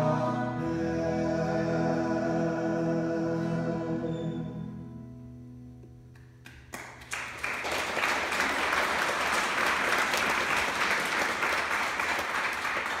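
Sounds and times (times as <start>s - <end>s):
audience applauding: 6.4s - 13.0s.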